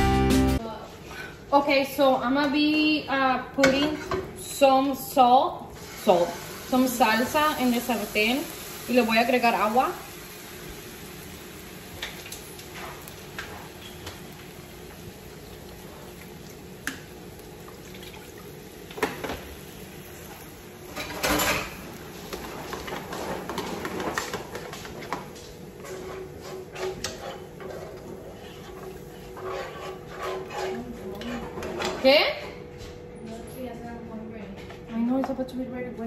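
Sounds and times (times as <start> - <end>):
salsa hissing in frying pan: 5.6 - 21.0.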